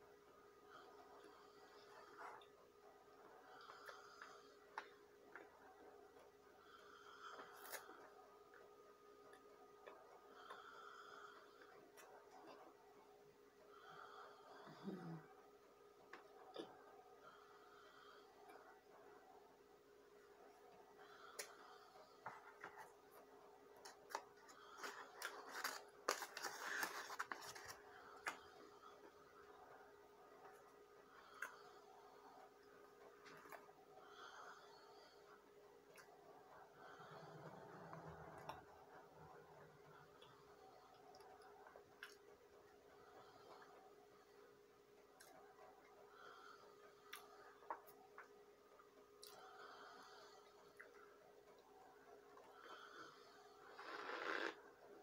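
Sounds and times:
faint steady hum: 0:00.0 - 0:55.0
paper liner crinkling: 0:23.9 - 0:28.4.

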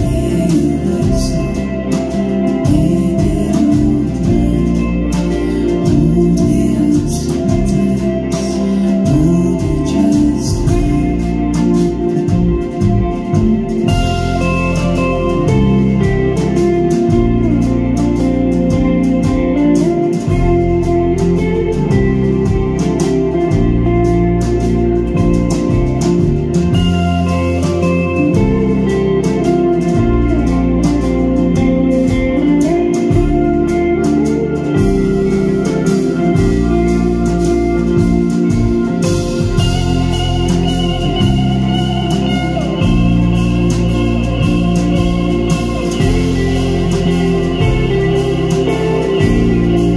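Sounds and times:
bass notes: 0:00.0 - 0:49.9
drums: 0:00.0 - 0:49.9
electric guitars: 0:00.0 - 0:49.9
organ-like keyboard chords: 0:00.0 - 0:49.9.

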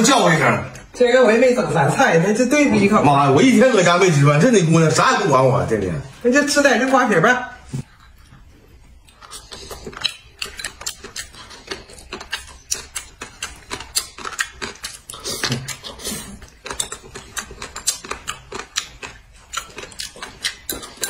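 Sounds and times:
crunchy chewing: 0:07.8 - 0:21.0.

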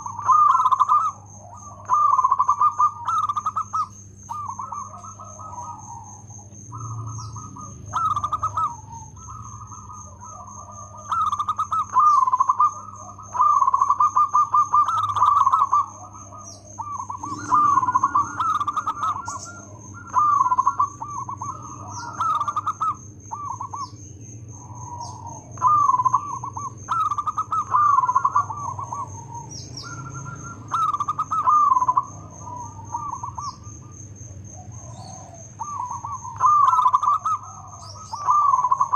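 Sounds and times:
dove cooing: 0:00.0 - 0:38.9
faint high-pitched tone: 0:17.1 - 0:20.8.

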